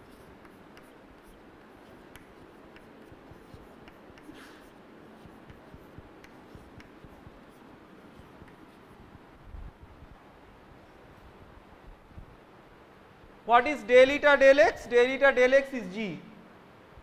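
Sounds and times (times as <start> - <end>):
chalk tapping and scratching: 0.0 - 9.3.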